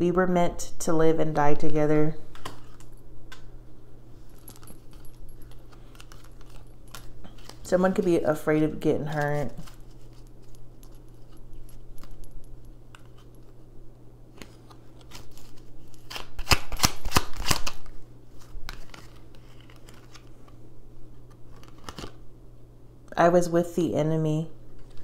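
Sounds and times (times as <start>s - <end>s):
low steady hum: 0.0s - 25.0s
cards being shuffled: 4.3s - 8.1s, 9.0s - 12.2s, 12.9s - 13.6s, 14.3s - 20.6s, 21.2s - 22.2s, 24.7s - 25.0s.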